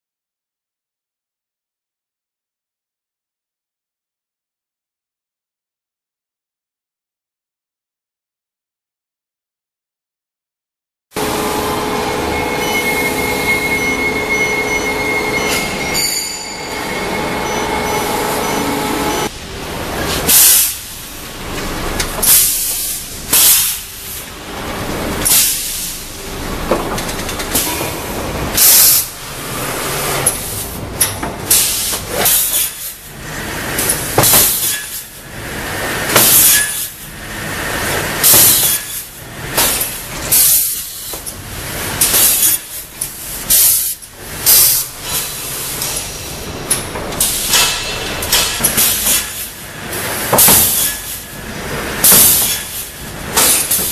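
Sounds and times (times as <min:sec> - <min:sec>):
crosscut saw machinery rumble: 0:11.2 - 0:20.2
boards on conveyors: 0:11.2 - 0:20.3.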